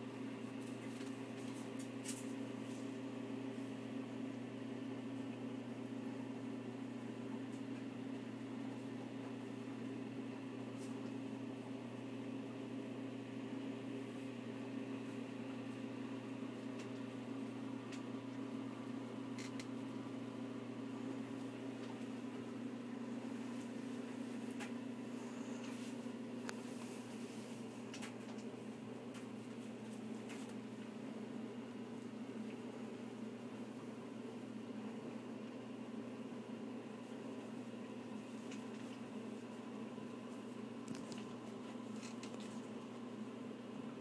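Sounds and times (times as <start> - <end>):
appliance hum: 0.0 - 44.0.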